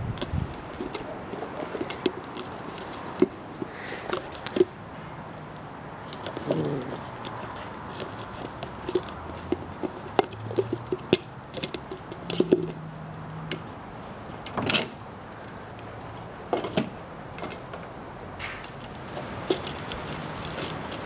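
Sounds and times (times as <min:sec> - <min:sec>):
grass rustling: 0:18.7 - 0:21.0.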